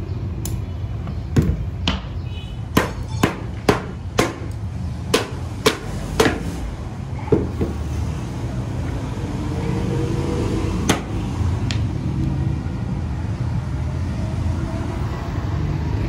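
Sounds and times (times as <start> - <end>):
hammer knocking on fibreglass: 2.8 - 4.5, 5.1 - 6.5, 7.3 - 7.9.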